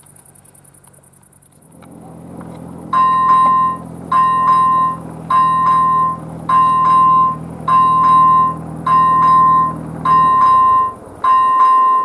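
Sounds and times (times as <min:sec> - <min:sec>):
low hum: 0:00.1 - 0:12.0
electronic crossing bell chime: 0:02.9 - 0:12.0.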